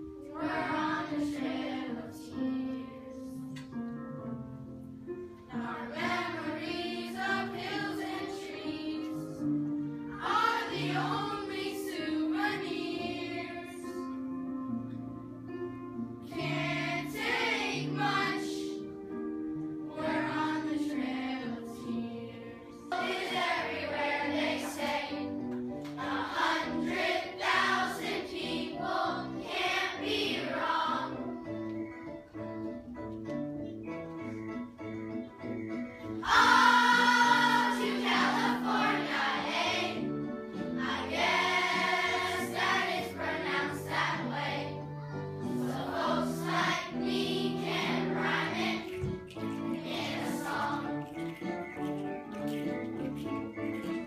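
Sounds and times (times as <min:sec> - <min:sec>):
children's choir singing: 0:00.0 - 0:03.5, 0:05.5 - 0:14.2, 0:16.3 - 0:19.0, 0:19.8 - 0:31.7, 0:36.1 - 0:51.4
instrumental accompaniment: 0:02.4 - 0:54.0.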